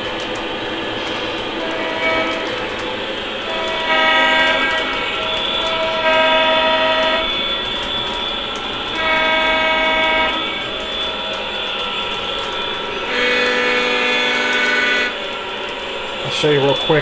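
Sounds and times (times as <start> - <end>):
model train running on track: 0.0 - 17.0
model train horn blasts: 1.5 - 2.8, 3.4 - 15.3.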